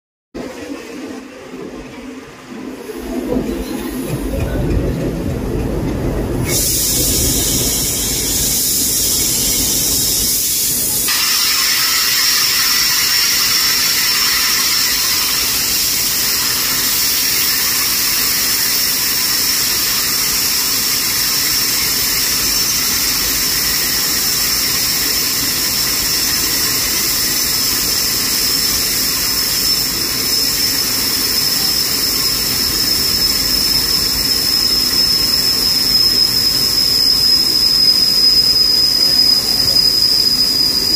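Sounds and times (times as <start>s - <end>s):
compressed air hissing: 6.4s - 37.6s
high whistle: 6.5s - 40.9s.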